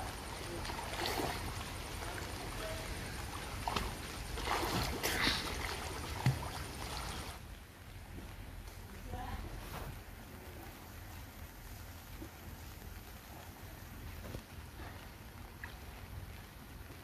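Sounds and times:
water splashing from swim strokes: 0.0s - 7.4s.

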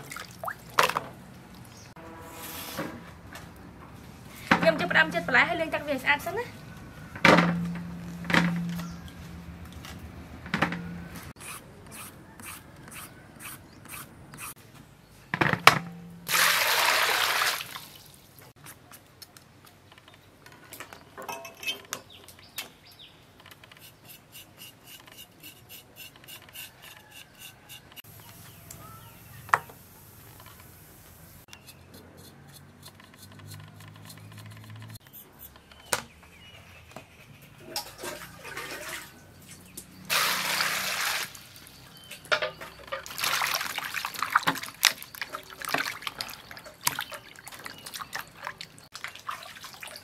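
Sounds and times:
water rushing into bowl: 16.3s - 18.0s, 40.1s - 41.6s
knife clicking and scraping: 31.5s - 35.7s.

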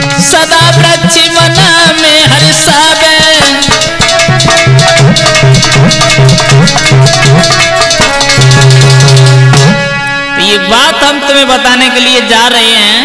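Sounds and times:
quick percussion beat: 0.0s - 10.0s
harmonium melody: 0.0s - 13.0s.

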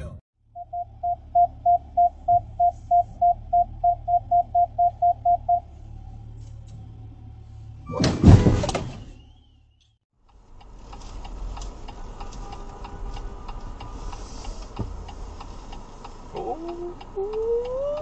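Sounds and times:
car engine hum: 0.0s - 7.9s, 10.3s - 18.0s
proximity warning beeps: 0.6s - 5.6s
car bumper impact: 8.0s - 9.0s.

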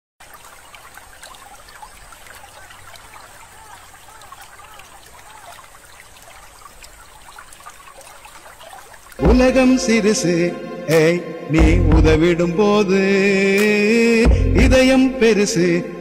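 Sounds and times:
water drips and plops: 0.2s - 9.2s
water trickling and bubbling: 0.2s - 9.2s.

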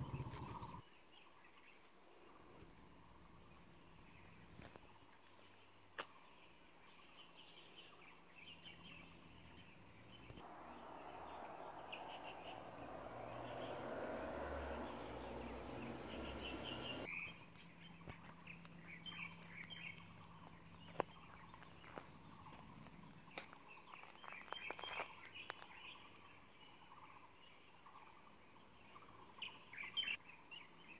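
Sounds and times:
birds chirping: 3.0s - 28.0s
rushing noise: 10.4s - 17.1s.

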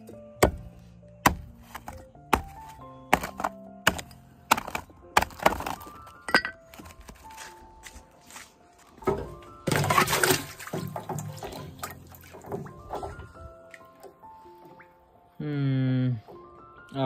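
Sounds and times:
background music: 0.0s - 17.0s
stone striking ice: 1.2s - 6.9s.

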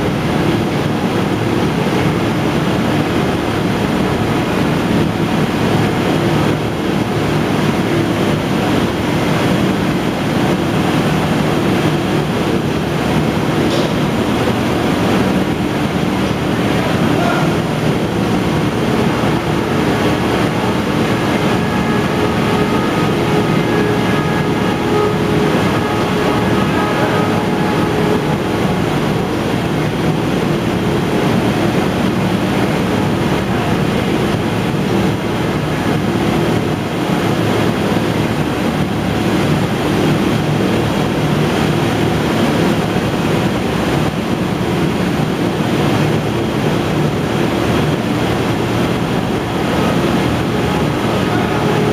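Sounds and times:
factory conveyors and machines: 0.0s - 51.9s
steady low hum: 0.0s - 51.9s
faint high whine: 16.8s - 32.1s.

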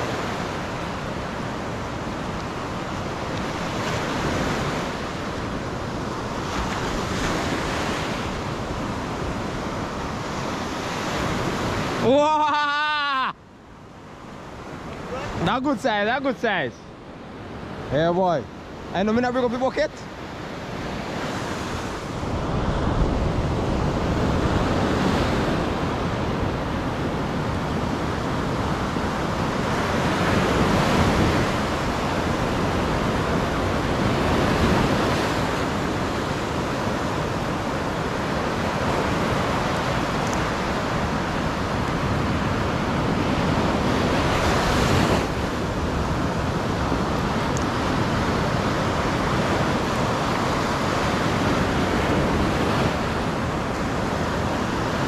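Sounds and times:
sea surf washing in: 0.0s - 55.0s
wind buffeting microphone: 20.4s - 55.0s.

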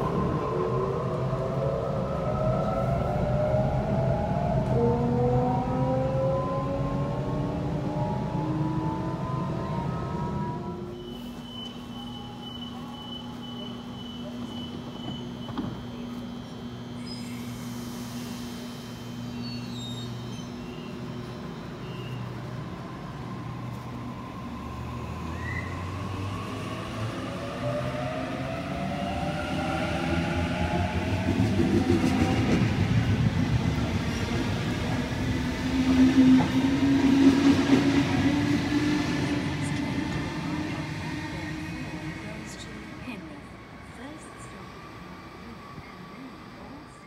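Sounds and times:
train wheels rumbling on rails: 20.0s - 44.8s.

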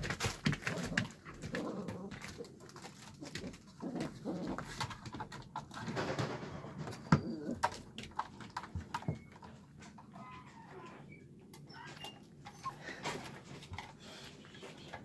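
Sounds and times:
puppies growling and whining: 0.7s - 5.0s, 6.7s - 8.0s, 9.0s - 14.0s.

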